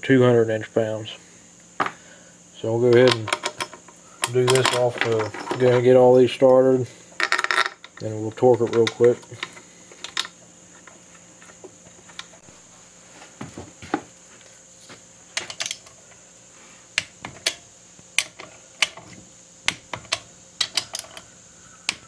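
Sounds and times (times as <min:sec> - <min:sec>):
metal bolts clicking and clinking: 0:02.9 - 0:06.2, 0:19.9 - 0:21.3.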